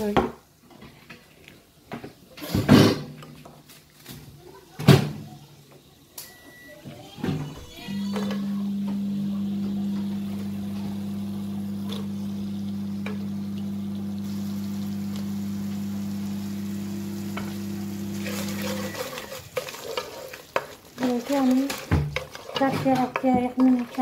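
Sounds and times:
fruit sizzling in oil: 4.5s - 24.0s
low electrical hum: 7.6s - 19.3s
spatula scraping pot: 17.4s - 24.0s.

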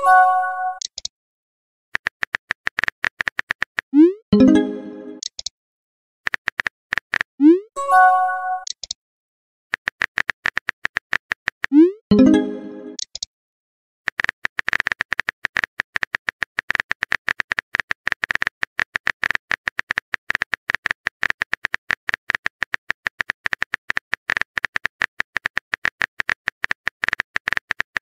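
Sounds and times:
keyboard typing clicks: 0.8s - 1.1s, 2.0s - 5.5s, 8.6s - 9.0s, 9.8s - 13.3s, 14.1s - 28.0s.

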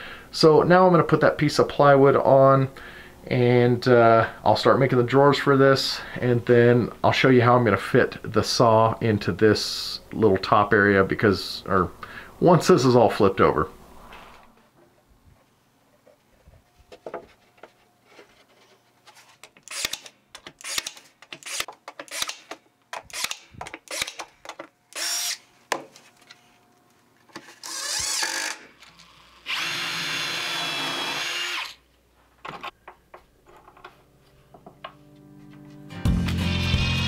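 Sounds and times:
screws and boards clicking: 19.4s - 25.4s
drill driving screws into wood: 19.6s - 24.3s, 24.9s - 25.4s, 27.6s - 31.8s.

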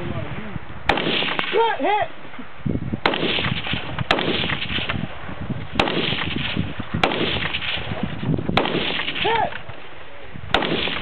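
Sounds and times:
rifle shots with echo: 0.9s - 1.6s, 3.0s - 5.0s, 5.7s - 9.5s, 10.5s - 11.0s.

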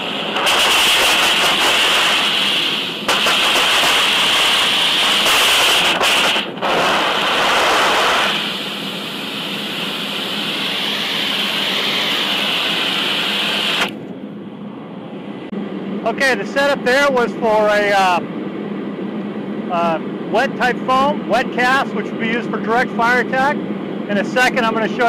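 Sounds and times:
foam nozzle hissing rush: 0.0s - 14.0s.

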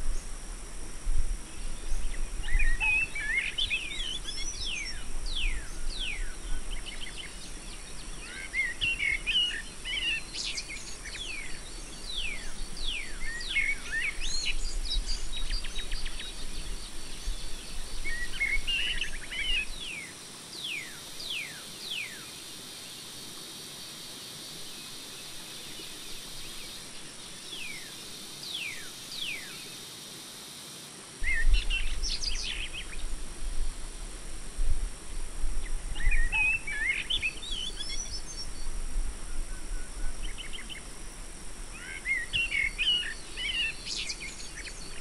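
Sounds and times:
background hiss: 0.0s - 45.0s
birds chirping and whistling: 1.9s - 20.0s, 31.2s - 33.0s, 36.0s - 38.6s, 41.8s - 45.0s.

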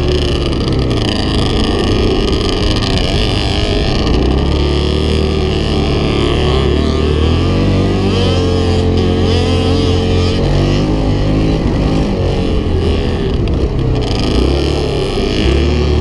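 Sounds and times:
quad bike engine revving: 0.0s - 16.0s.

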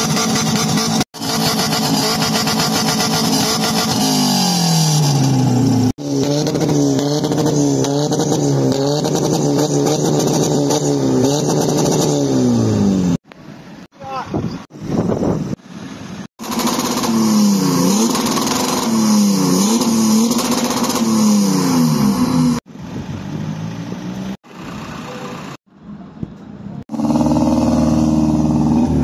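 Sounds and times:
car engine revving: 0.0s - 13.2s, 16.3s - 22.7s, 26.8s - 29.0s
car moving off: 14.8s - 29.0s.

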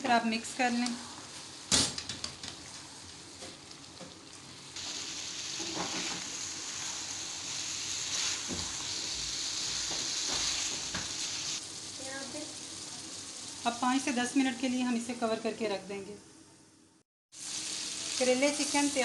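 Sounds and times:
food sizzling in a frying pan: 0.0s - 16.0s, 17.3s - 19.0s.

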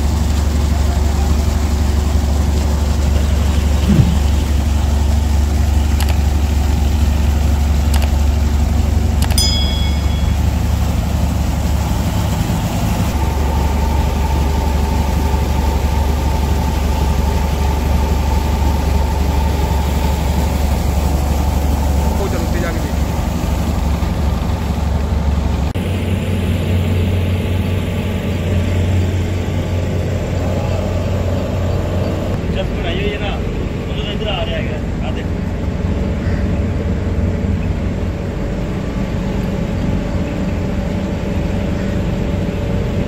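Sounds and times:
engine droning: 0.0s - 43.0s
water gushing and splashing: 1.4s - 5.9s.

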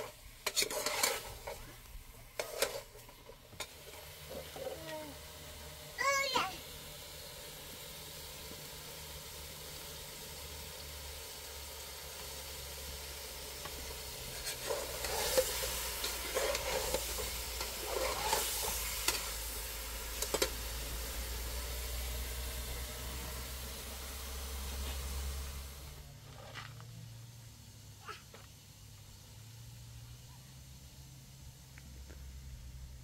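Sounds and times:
utensils scraping and clinking: 0.0s - 3.8s, 14.3s - 19.3s.

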